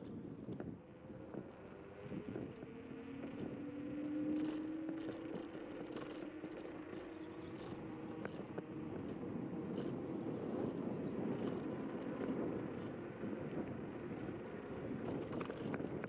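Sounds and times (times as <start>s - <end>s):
electric scooter motor whine: 0.0s - 16.0s
small clicks from bumps: 0.0s - 16.0s
tyre and wind noise: 4.5s - 16.0s.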